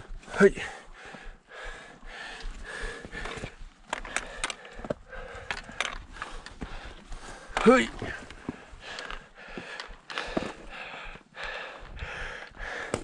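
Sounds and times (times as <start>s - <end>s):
person breathing hard: 0.0s - 13.0s.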